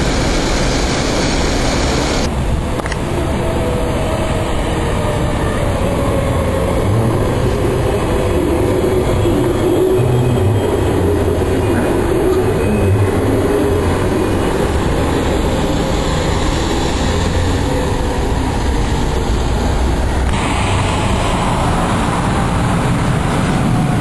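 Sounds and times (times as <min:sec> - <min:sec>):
high hiss: 0:00.0 - 0:02.3
electric train rumbling: 0:00.0 - 0:24.0.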